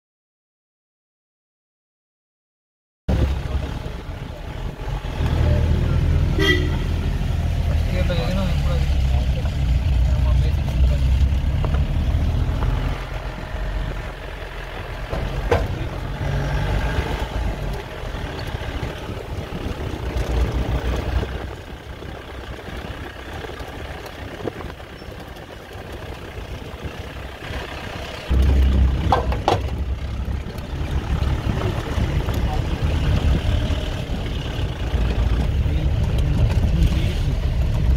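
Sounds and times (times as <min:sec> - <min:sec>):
vehicle engine and road noise: 0:03.1 - 0:37.9
wind rumbling on microphone: 0:09.4 - 0:37.9.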